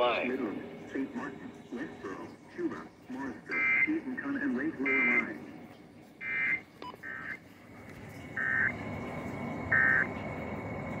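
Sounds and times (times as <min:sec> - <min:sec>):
buzzy digital chirps: 0:08.4 - 0:08.7, 0:09.7 - 0:10.1.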